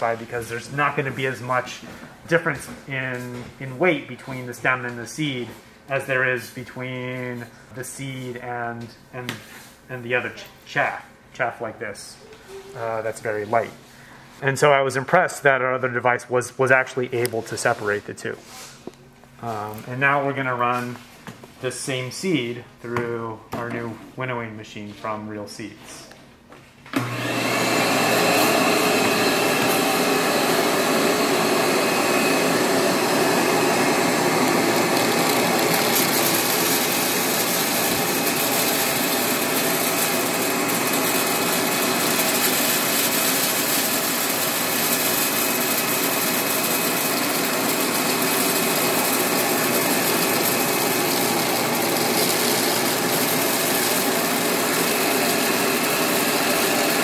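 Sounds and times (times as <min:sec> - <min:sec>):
shop vac running: 0:00.0 - 0:11.0, 0:26.9 - 0:57.0.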